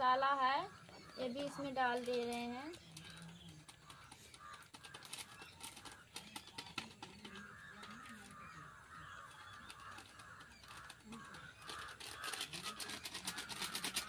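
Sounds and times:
paper and plastic sachets crinkling: 1.2 - 14.0.

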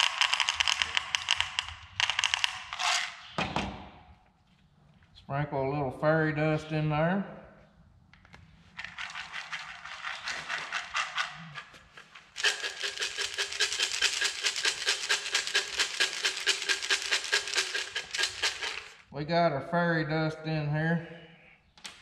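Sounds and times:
beans rattling in plastic cup: 0.0 - 2.9, 8.8 - 19.1.

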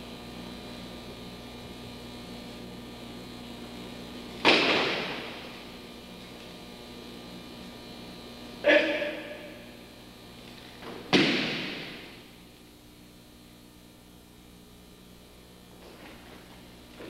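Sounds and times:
mains hum: 0.0 - 17.0.

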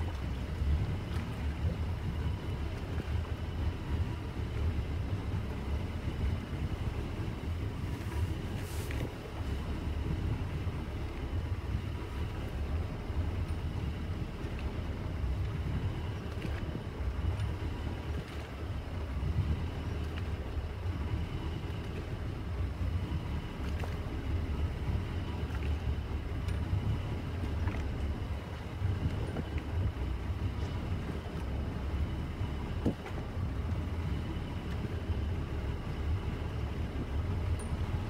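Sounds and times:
water washing past hull: 0.0 - 38.0
wind buffeting microphone: 0.0 - 38.0.

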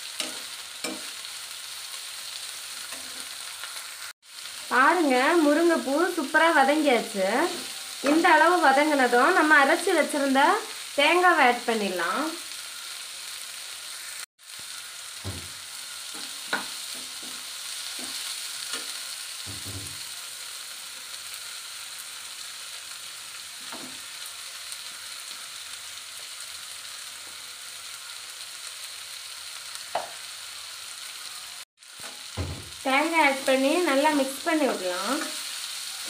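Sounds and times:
vegetables sizzling in oil: 0.0 - 36.0
utensils knocking on pan: 0.2 - 1.2, 15.2 - 15.6, 19.5 - 20.0, 29.9 - 30.2, 32.0 - 32.8.

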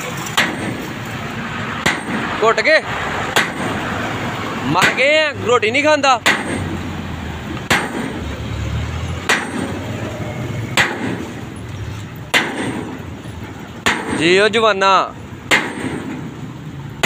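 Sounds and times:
sledgehammer striking steel: 0.2 - 4.0, 4.6 - 5.4, 6.1 - 6.9, 7.6 - 8.4, 9.2 - 11.6, 12.2 - 14.6, 15.3 - 17.0.

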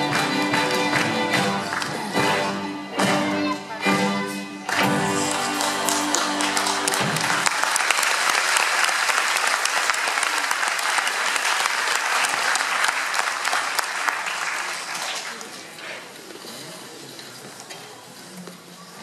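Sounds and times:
audience applauding: 0.0 - 2.6, 4.6 - 15.7.

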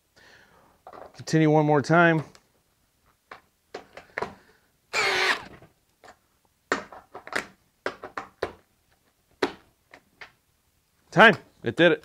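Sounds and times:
drill motor whine: 5.0 - 5.5
drill clicks and knocks: 5.0 - 5.6.

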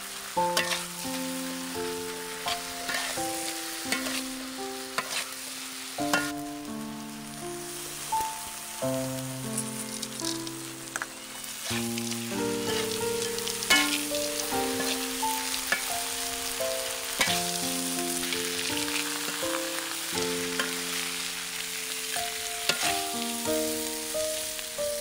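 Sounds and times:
background music melody: 0.0 - 25.0
oil sizzling in a wok: 0.0 - 25.0
utensil clinking on pan: 0.6 - 0.9, 6.1 - 6.4, 13.7 - 14.1, 22.7 - 23.1.

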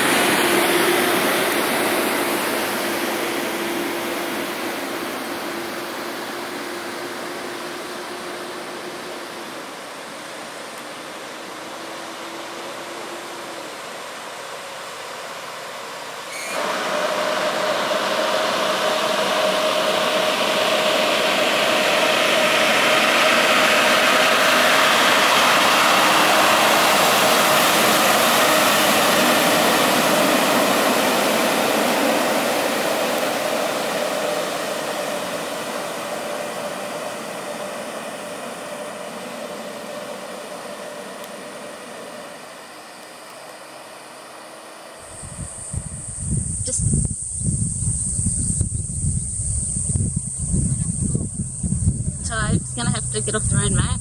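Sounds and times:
truck diesel engine: 0.0 - 47.1, 49.9 - 54.0
water rushing and splashing: 16.6 - 37.2.

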